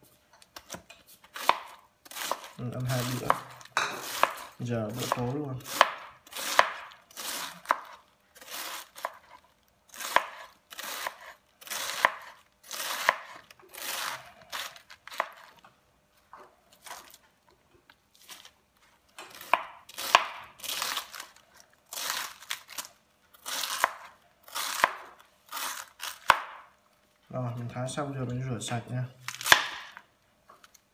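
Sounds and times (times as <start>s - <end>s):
knife slicing cabbage on board: 0.6s - 15.6s, 19.3s - 26.6s, 29.4s - 30.0s.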